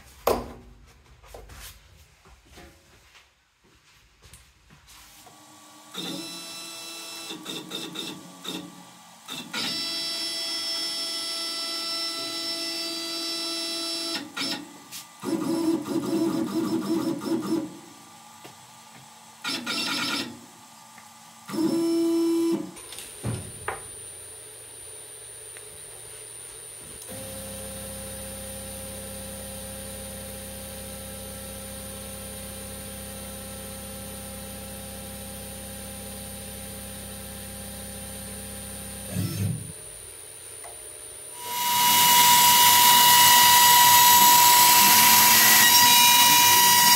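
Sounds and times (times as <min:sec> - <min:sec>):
stepper motors whining: 0:39.1 - 0:39.8, 0:41.3 - 0:46.9
router spindle running loudly: 0:41.4 - 0:46.9.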